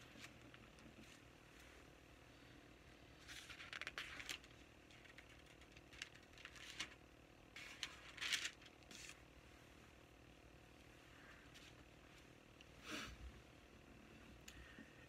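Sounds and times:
thin pages rustling: 3.2 - 7.0, 7.6 - 9.2.

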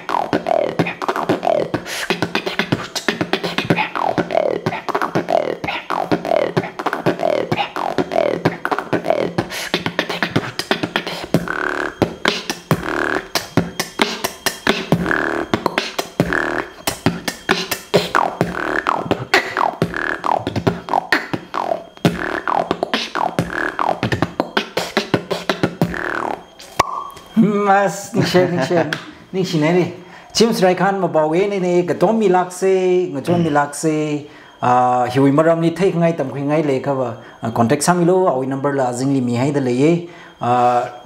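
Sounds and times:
person beatboxing: 0.0 - 27.7
hummed and sung tones: 0.0 - 41.0.

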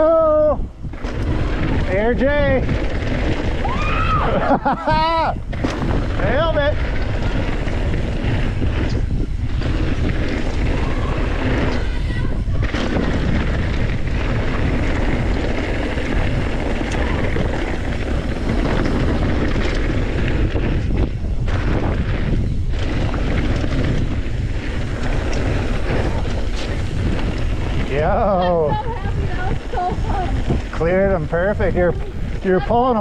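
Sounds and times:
bike tyres rolling on dirt: 0.0 - 33.0
wind buffeting microphone: 0.0 - 33.0.

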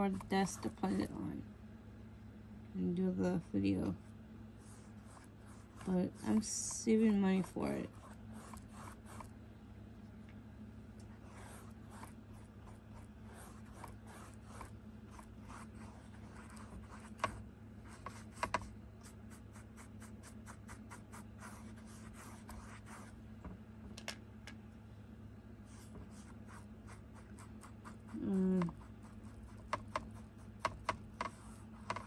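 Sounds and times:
scratchy paintbrush strokes on canvas: 11.1 - 23.2.

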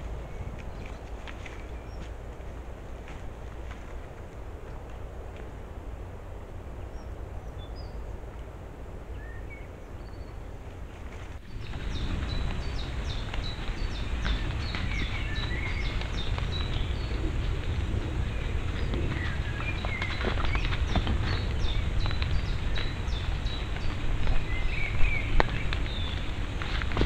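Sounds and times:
steady hiss and low rumble: 0.0 - 27.0
bird chirps: 9.1 - 10.5, 11.5 - 26.4
deer stepping in leaf litter: 10.8 - 27.0.

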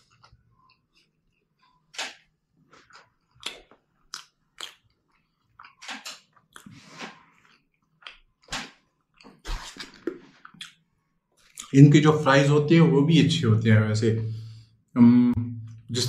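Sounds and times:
person chewing and biting: 0.0 - 10.8.

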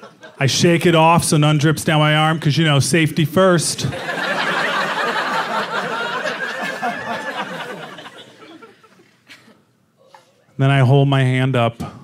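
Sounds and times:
audience laughing: 0.0 - 0.6, 3.8 - 9.6.

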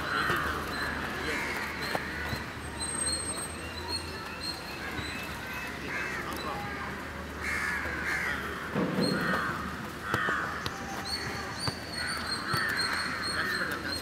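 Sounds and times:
crows cawing: 0.0 - 2.5, 5.8 - 13.9.

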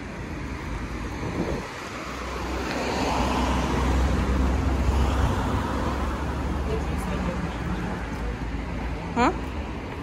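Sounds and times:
vehicle engine rumble: 0.0 - 10.0.

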